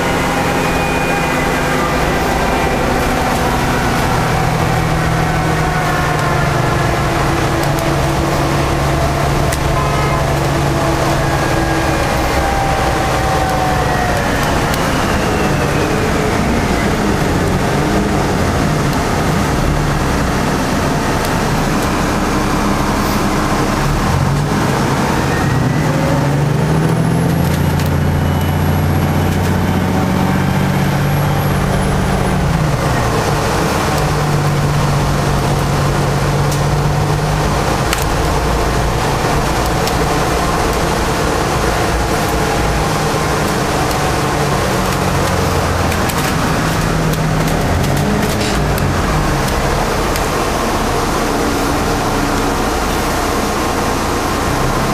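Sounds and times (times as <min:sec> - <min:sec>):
bus engine drone: 0:00.0 - 0:54.9.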